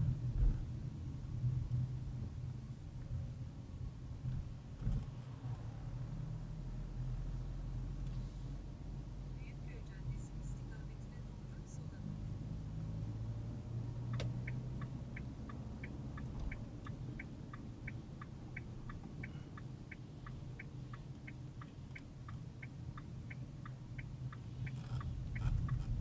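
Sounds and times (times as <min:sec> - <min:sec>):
engine and road hum: 0:00.0 - 0:26.0
turn signal clicking: 0:13.8 - 0:26.0.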